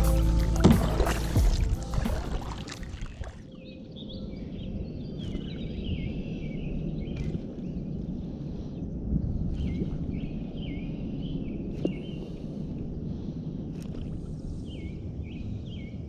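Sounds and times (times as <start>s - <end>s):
wind and water rumble: 0.0s - 16.0s.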